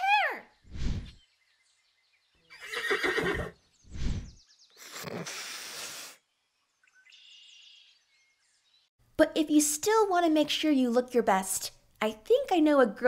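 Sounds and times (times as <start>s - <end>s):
cartoon horse whinnying: 2.5s - 3.6s.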